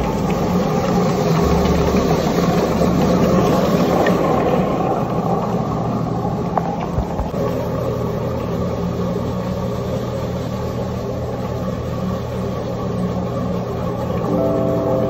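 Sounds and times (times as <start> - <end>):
floor machine motor hum: 0.0 - 6.6, 7.4 - 15.0
music: 14.3 - 15.0.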